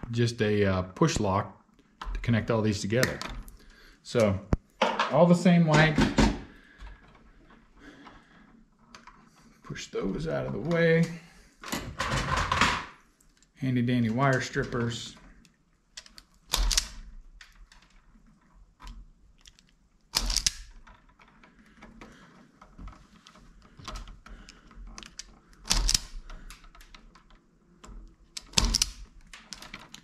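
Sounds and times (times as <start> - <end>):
wires rustling: 0.0 - 30.0
wire strippers snapping: 14.2 - 18.1, 18.7 - 21.0, 23.6 - 27.2, 27.8 - 30.0
small tool clicks: 25.0 - 26.6.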